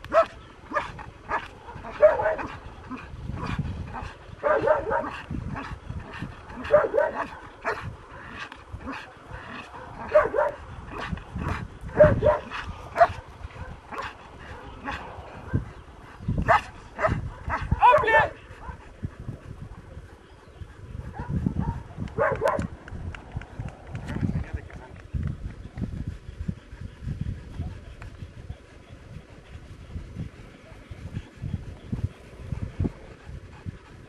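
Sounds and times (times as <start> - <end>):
dog barking: 0.1 - 2.5, 4.4 - 5.1, 6.6 - 7.8, 9.5 - 10.6, 11.9 - 15.6, 16.5 - 18.8, 21.2 - 22.7.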